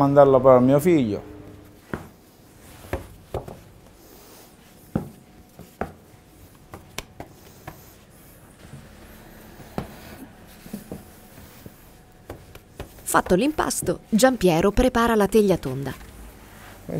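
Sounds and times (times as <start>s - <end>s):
dough thumping on wooden board: 2.8s - 3.7s, 4.9s - 7.8s, 12.2s - 13.6s
light hand taps: 6.7s - 7.9s.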